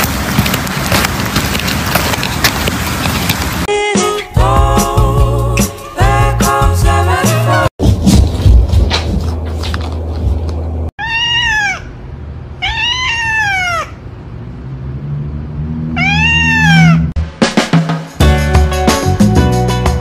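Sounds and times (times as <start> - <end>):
background music: 3.7 - 7.7, 17.2 - 20.0
cat meowing: 11.0 - 12.0, 12.6 - 14.0, 16.0 - 17.1.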